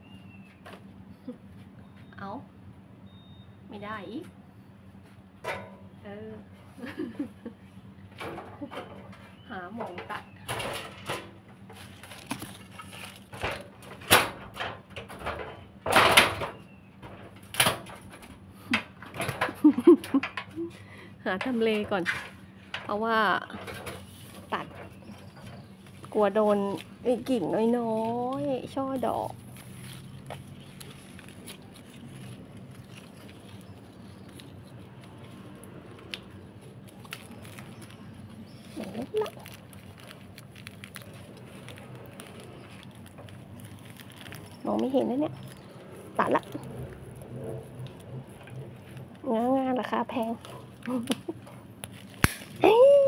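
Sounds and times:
leaves and twigs rustling: 0:09.3 - 0:14.1, 0:21.6 - 0:53.0
pruning shears clicking: 0:50.4 - 0:52.6.

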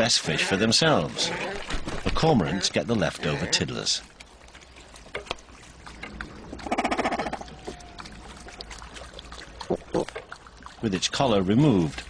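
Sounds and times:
water sounds: 0:00.0 - 0:12.0
cormorant croak: 0:06.1 - 0:08.3.

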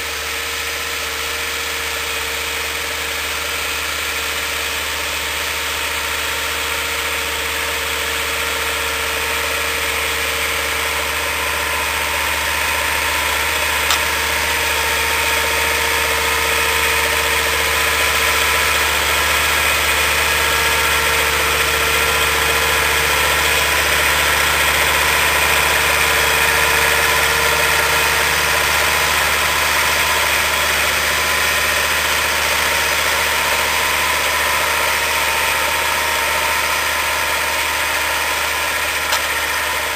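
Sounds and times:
tractor diesel engine under load: 0:00.0 - 0:39.9
brief click: 0:13.9 - 0:14.2.

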